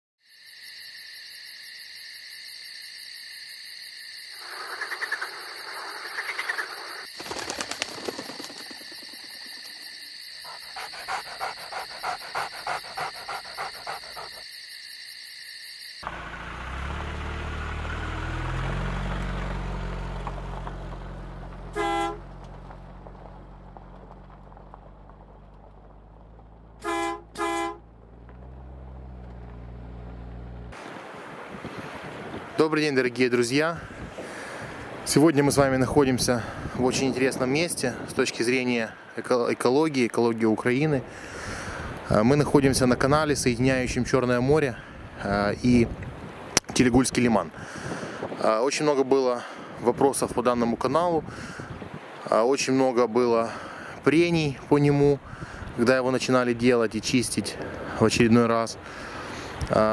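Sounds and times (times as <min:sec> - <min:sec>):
vehicle engine rumble: 0:16.0 - 0:32.6, 0:53.5 - 0:59.9
car horn honking: 0:21.7 - 0:22.4, 0:26.8 - 0:27.9.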